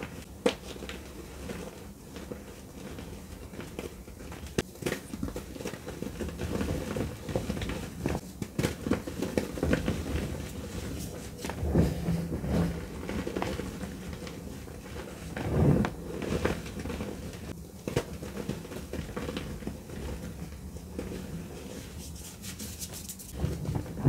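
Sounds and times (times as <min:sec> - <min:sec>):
chalk crunching between hands: 0:21.9 - 0:23.4.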